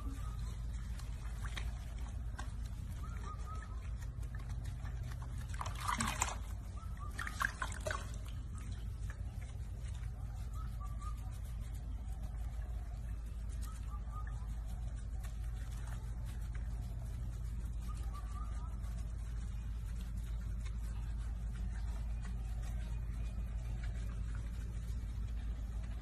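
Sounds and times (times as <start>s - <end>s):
low hum: 0.0s - 26.0s
water splashing in sink: 5.0s - 8.3s.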